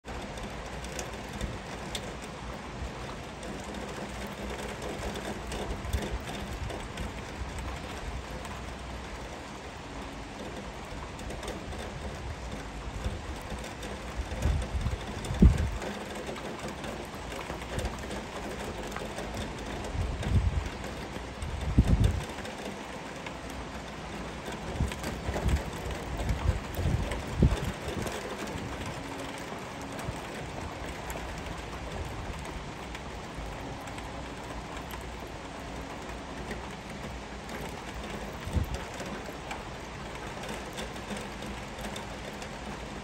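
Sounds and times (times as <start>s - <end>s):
heavy rain falling: 0.0s - 43.0s.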